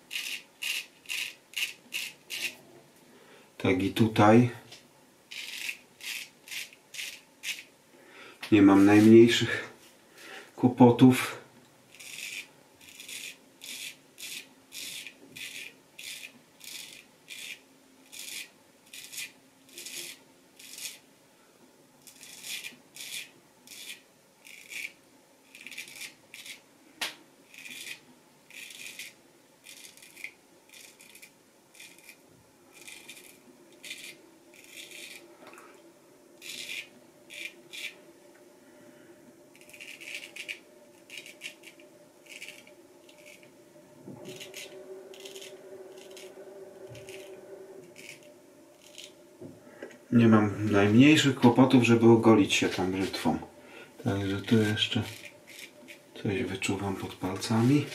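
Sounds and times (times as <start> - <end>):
razor scraping through stubble: 0.1 - 2.6, 5.3 - 7.7, 11.9 - 21.0, 22.0 - 26.6, 27.5 - 35.2, 36.4 - 38.0, 39.6 - 43.5, 44.2 - 46.3, 48.0 - 49.2, 54.2 - 56.0.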